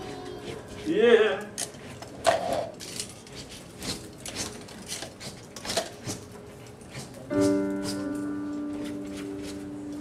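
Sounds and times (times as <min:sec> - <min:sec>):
sustained keyboard chord: 0:07.3 - 0:10.0.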